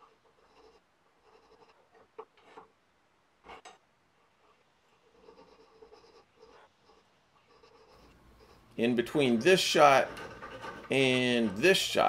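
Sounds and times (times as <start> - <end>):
hand file rasping on brass: 5.0 - 12.0.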